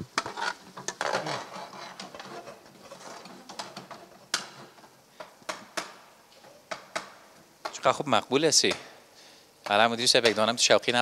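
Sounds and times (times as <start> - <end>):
metal ladle scraping steel pan: 0.2 - 3.5.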